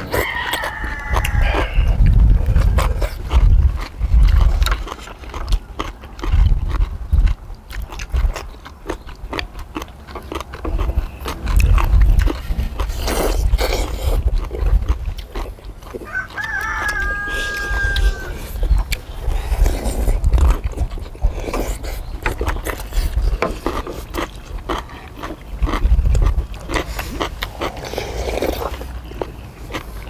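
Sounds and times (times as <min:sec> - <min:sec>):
chewing and lip smacking: 0:00.0 - 0:30.0
rooster crowing: 0:00.1 - 0:01.9, 0:16.0 - 0:18.6
slurping soup and noodles: 0:10.2 - 0:16.1, 0:17.3 - 0:30.0.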